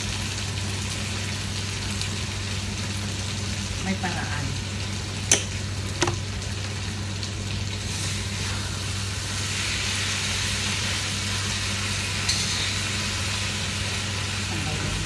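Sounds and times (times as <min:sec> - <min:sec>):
vegetables sizzling in a wok: 0:00.0 - 0:15.0
jar and lid clinks: 0:05.3 - 0:05.5.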